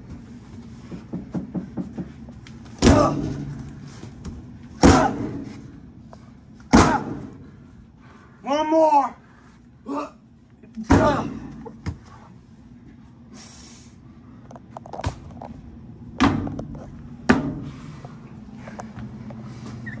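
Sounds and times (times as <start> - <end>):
steady low hum: 0.0 - 20.0
body thuds and slaps: 2.8 - 3.6, 4.8 - 5.5, 6.7 - 7.3.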